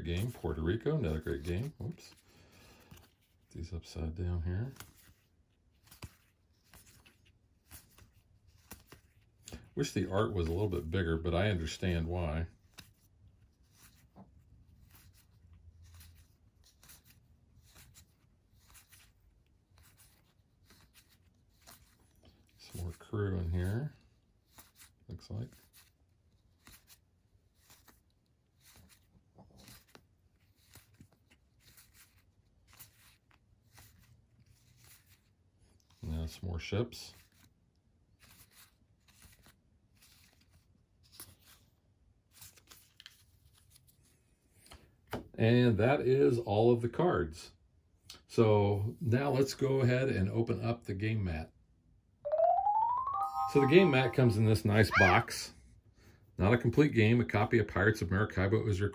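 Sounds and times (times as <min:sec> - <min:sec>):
cards rustling and tapping: 0:00.1 - 0:03.5, 0:04.6 - 0:36.0, 0:37.1 - 0:45.3.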